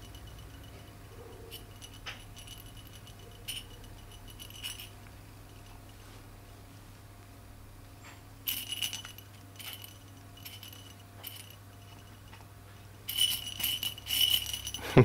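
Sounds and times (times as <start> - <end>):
jingle bell in toy jingling: 0.0 - 6.0, 8.5 - 12.4, 13.0 - 15.0.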